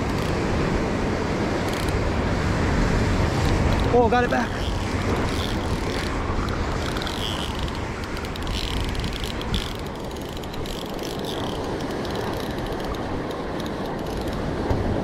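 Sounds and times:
fishing reel ticking: 0.0s - 0.4s, 1.6s - 2.0s, 3.4s - 14.4s
surf washing: 0.0s - 15.0s.

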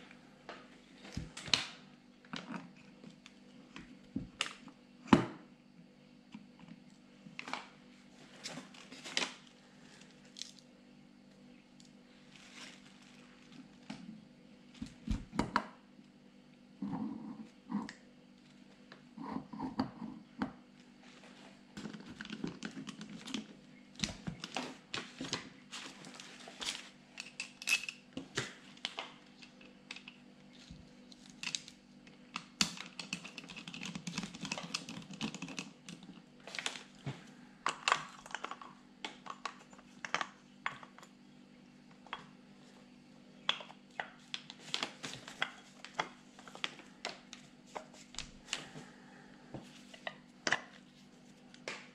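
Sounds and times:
metal parts clicking and clinking: 27.2s - 28.0s.

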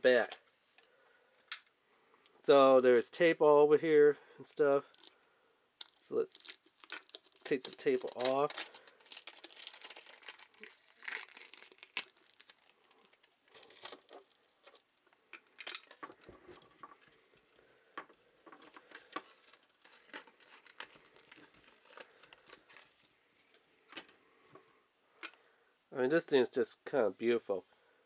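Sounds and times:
plastic wrapping crinkling: 4.8s - 5.2s, 5.8s - 24.0s.

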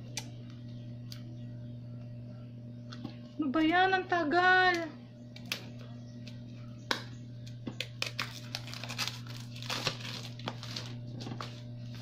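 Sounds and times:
steady low hum: 0.0s - 12.0s
cardboard packaging rustling: 8.0s - 12.0s.

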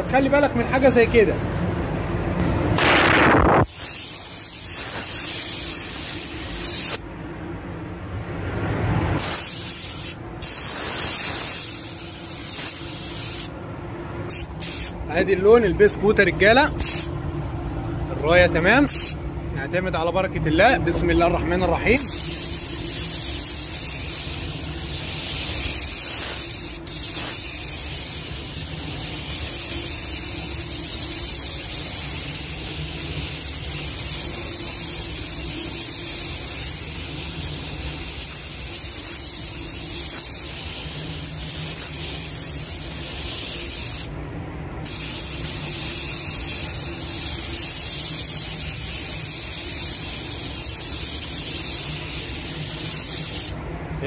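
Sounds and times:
paint spray gun hissing: 2.8s - 7.0s, 9.2s - 13.6s, 14.3s - 15.0s, 16.8s - 17.1s, 18.9s - 19.2s, 22.0s - 44.1s, 44.8s - 53.6s.

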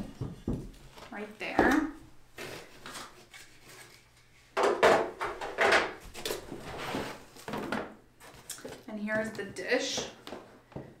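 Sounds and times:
cardboard scraping and rustling: 6.2s - 7.6s.

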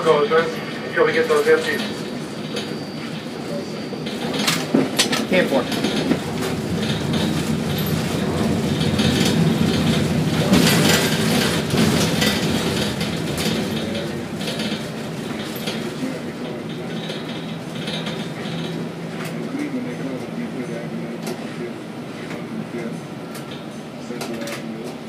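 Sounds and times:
crane machinery rumbling: 0.1s - 19.4s
rattling and clinking: 4.1s - 18.9s.

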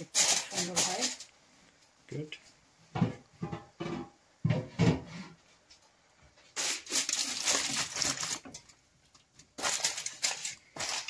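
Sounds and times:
aluminium foil crinkling: 0.0s - 1.3s, 6.5s - 11.0s.

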